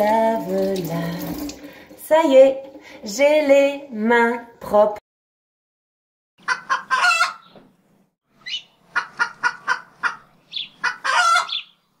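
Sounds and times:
chicken clucking: 6.4s - 7.5s, 8.5s - 11.7s.

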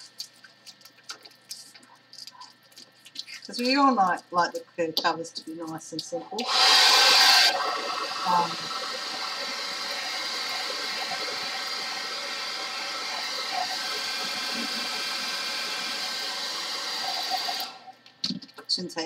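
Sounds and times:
hair dryer blowing: 6.4s - 17.9s.

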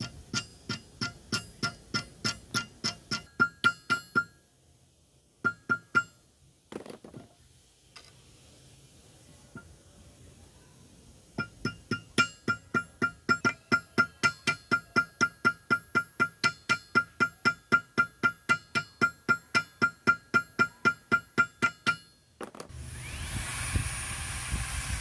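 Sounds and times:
small hammer tapping metal: 0.0s - 4.4s, 5.4s - 6.2s, 11.4s - 22.7s.

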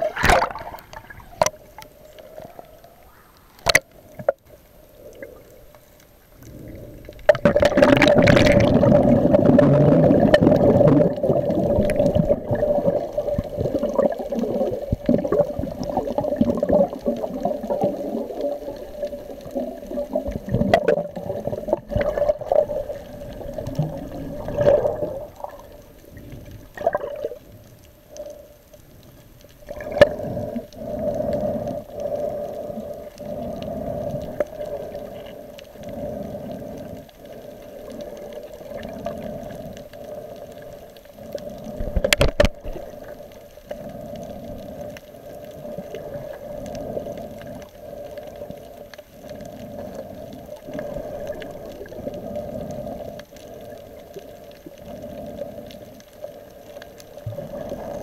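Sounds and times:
underwater water sloshing and gurgling: 0.0s - 58.0s.

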